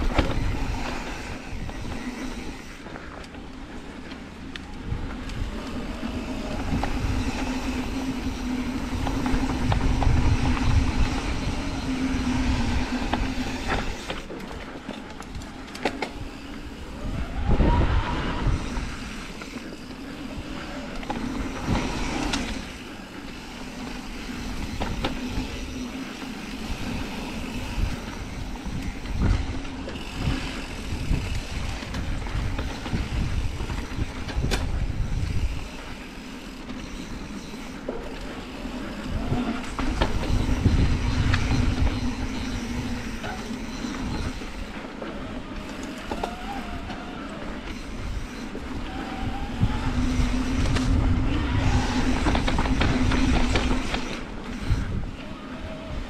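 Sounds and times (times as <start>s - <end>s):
wind rushing over microphone: 0.0s - 2.8s, 4.8s - 14.3s, 16.1s - 19.4s, 26.6s - 36.0s, 38.9s - 44.7s, 47.8s - 56.0s
bike chain and frame rattling: 18.4s - 55.8s.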